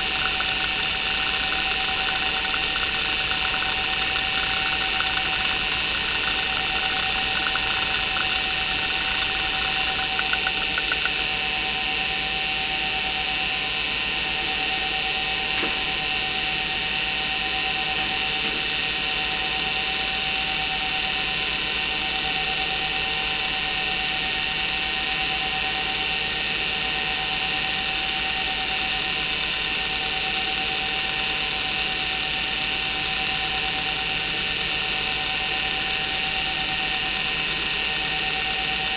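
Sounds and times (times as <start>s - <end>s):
rough bearing hum: 0.0s - 11.2s
hard drive heads chattering: 0.0s - 11.3s
spindle motor whine: 0.0s - 38.9s.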